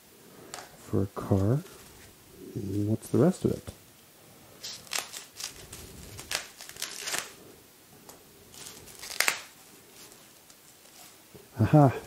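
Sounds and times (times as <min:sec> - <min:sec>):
foam wrap crinkling: 0:04.6 - 0:07.5, 0:08.5 - 0:11.3.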